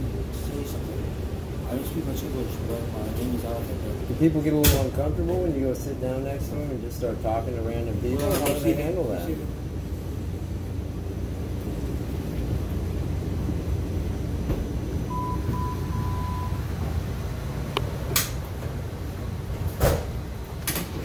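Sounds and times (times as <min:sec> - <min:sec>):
low rumble inside rail car: 0:00.0 - 0:21.0
high electronic beeps: 0:15.1 - 0:16.7.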